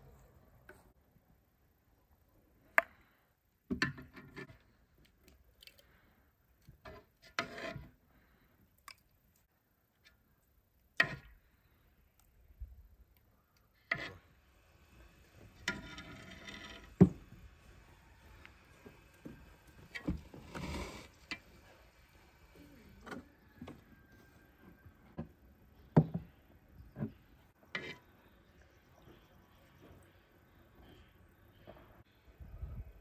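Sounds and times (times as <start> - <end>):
rustling and scraping: 13.9 - 23.2.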